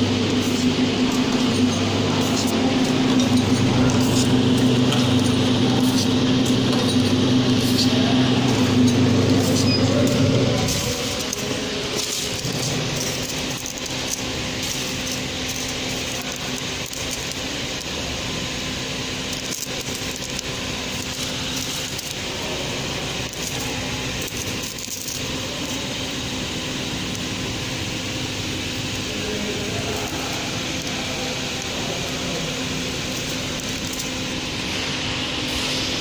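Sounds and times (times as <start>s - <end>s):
packing machine humming: 0.0s - 36.0s
plastic sachets crinkling: 8.6s - 18.0s, 19.2s - 26.0s, 29.6s - 34.5s.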